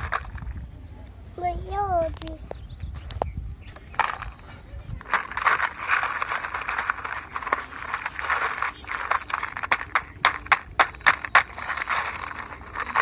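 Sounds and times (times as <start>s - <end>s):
stones clicking into plastic truck: 0.0s - 0.6s, 3.7s - 4.4s, 5.0s - 13.0s.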